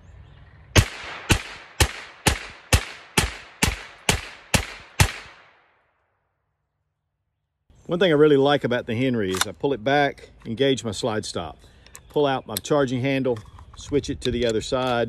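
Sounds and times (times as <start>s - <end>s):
carbine gunshots: 0.8s - 5.7s.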